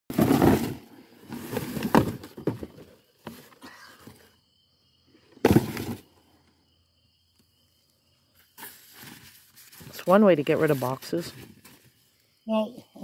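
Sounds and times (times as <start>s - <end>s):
faint high insect trill: 1.3s - 13.0s
cardboard and paper rustling: 8.6s - 12.0s.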